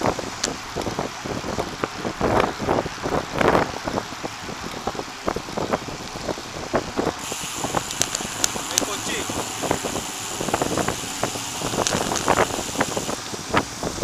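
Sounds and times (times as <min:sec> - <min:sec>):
road and wind noise: 0:00.0 - 0:14.0.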